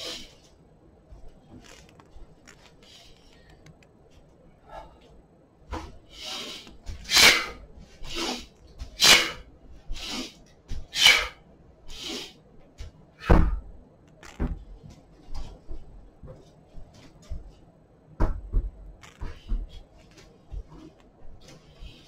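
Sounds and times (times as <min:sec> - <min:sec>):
sharp hissing breaths: 0:06.1 - 0:12.4.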